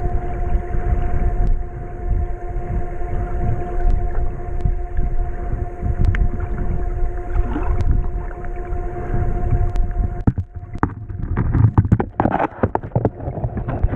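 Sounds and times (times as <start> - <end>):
steady hum: 0.0 - 13.9
underwater river current rumbling: 0.0 - 13.9
underwater clicks and knocks: 6.0 - 6.7, 7.3 - 8.6, 9.7 - 13.9.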